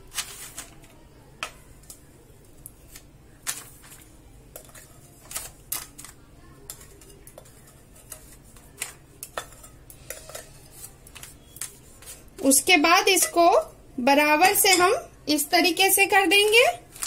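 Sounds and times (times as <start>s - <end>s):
utensil scraping and knocking a bowl: 6.7s - 12.4s.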